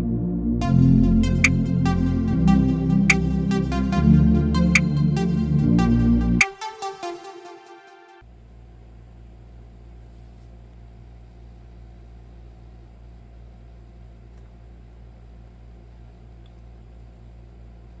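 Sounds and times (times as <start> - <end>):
low hum: 0.0 - 6.6
low hum with faint hiss: 8.3 - 18.0.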